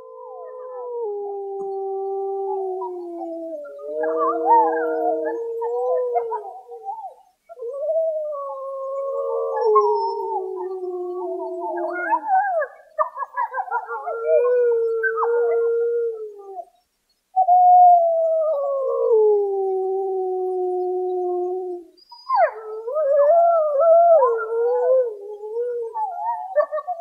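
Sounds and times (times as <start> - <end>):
wolves howling: 0.0 - 16.6, 17.4 - 27.0
wolves yipping: 11.8 - 14.4, 26.3 - 27.0.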